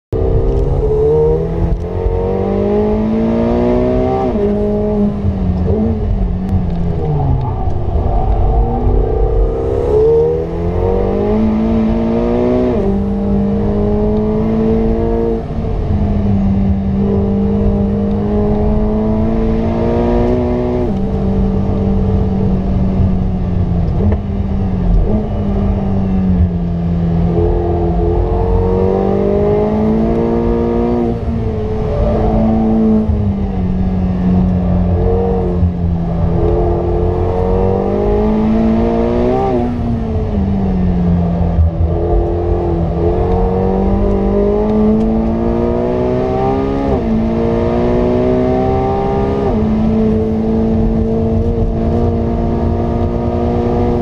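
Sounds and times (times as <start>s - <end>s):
tyre and road rumble: 0.1s - 12.8s
car engine accelerating: 0.1s - 54.0s.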